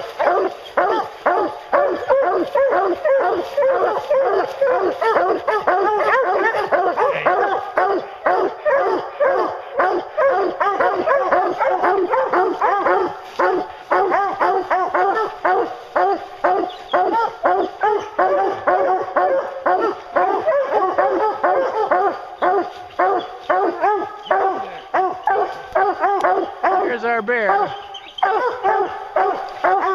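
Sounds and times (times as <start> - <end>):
hounds barking and bawling: 0.0 - 29.9.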